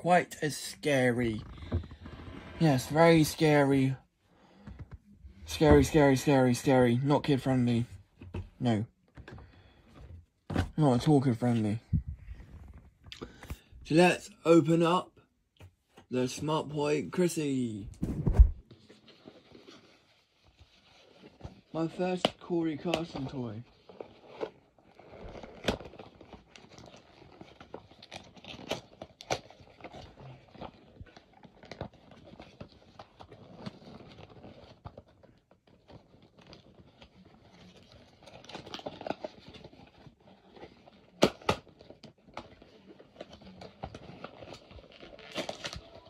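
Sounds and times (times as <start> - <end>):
cardboard and plastic crinkling: 18.0 - 46.0.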